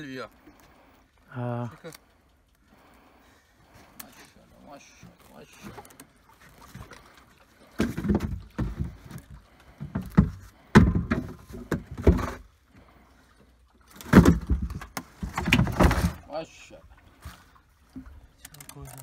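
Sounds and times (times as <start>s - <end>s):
heavy thuds on plastic crate: 9.8s - 12.4s.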